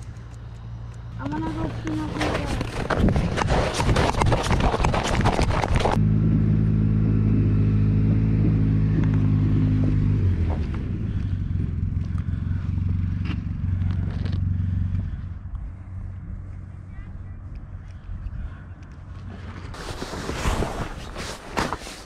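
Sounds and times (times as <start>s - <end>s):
light clicks: 0.0s - 1.2s
low engine hum: 0.0s - 3.6s, 5.6s - 19.8s.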